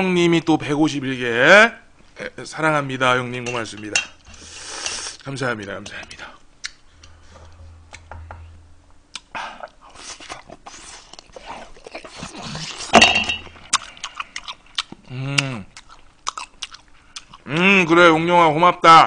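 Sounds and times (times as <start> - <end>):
wet chewing: 9.1 - 12.9, 13.5 - 18.0
person humming mm: 15.1 - 15.7.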